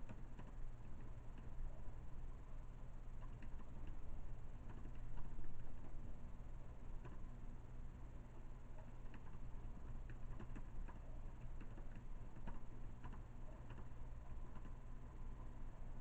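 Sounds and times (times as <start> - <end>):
typing on a keyboard: 0.0 - 1.6, 3.2 - 5.9, 7.0 - 7.3, 8.7 - 14.8
steady low hum: 0.0 - 16.0.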